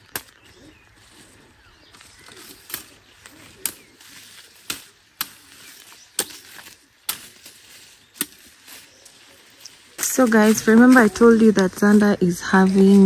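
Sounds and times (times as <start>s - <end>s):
machete chopping branch: 0.0s - 0.5s, 2.3s - 8.8s.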